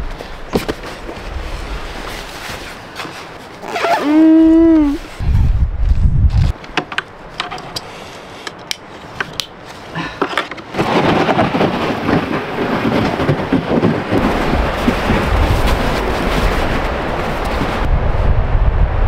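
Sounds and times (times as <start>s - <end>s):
sled scraping over snow: 0.7s - 5.6s, 9.7s - 17.9s
wind on microphone: 3.8s - 6.6s, 10.8s - 19.0s.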